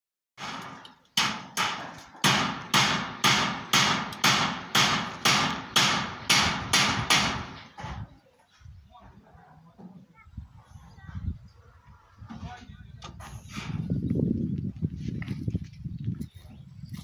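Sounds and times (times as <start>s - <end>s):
hammer nailing into timber: 0.4s - 8.0s.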